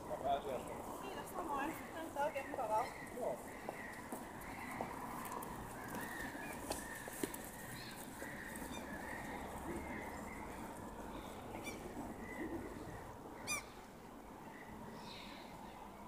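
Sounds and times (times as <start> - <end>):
birds calling: 0.0 - 15.9.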